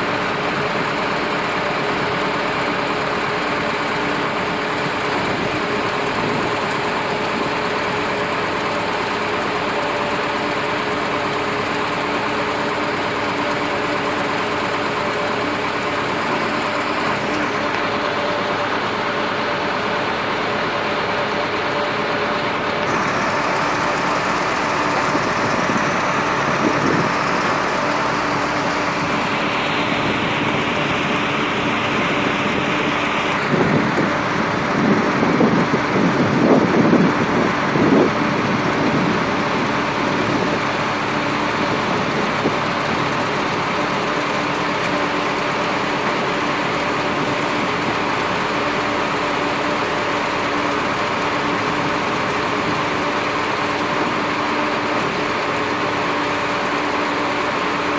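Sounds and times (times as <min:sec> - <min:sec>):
boat engine running: 0:00.0 - 0:57.9
conveyor machinery carrying reeds: 0:00.0 - 0:57.9.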